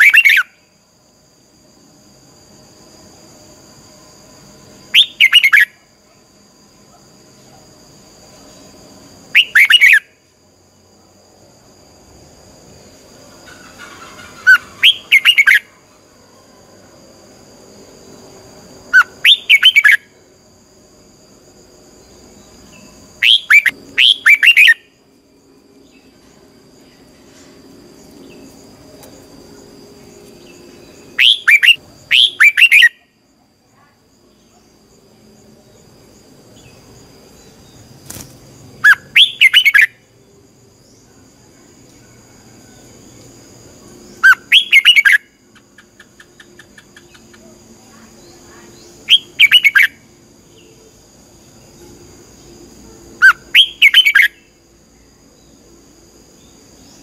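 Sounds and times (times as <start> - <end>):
bird whistled song phrases: 5.0 - 5.7, 9.3 - 10.1, 14.4 - 15.7, 19.0 - 20.0, 23.2 - 24.8, 31.2 - 33.0, 38.8 - 39.9, 44.2 - 45.3, 49.1 - 50.0, 53.2 - 54.4.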